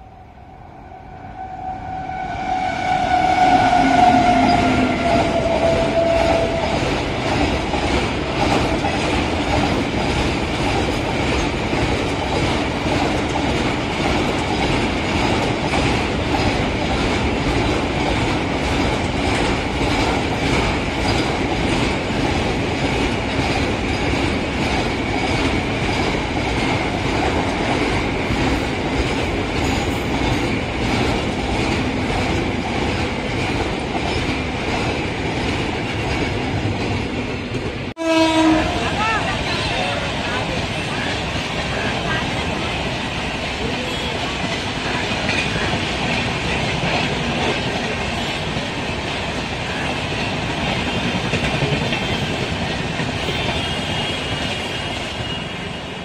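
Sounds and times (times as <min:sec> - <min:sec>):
loud steady tone: 0:00.0 - 0:07.2
train wheels clattering over rail joints: 0:06.0 - 0:37.8, 0:40.6 - 0:55.4.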